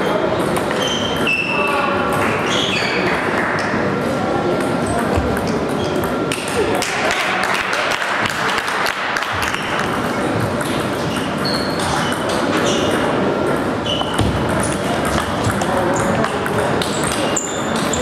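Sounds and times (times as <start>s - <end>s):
murmur of voices: 0.0s - 18.0s
short high squeaks: 0.7s - 1.6s, 11.2s - 13.0s
table tennis balls clicking: 9.2s - 18.0s.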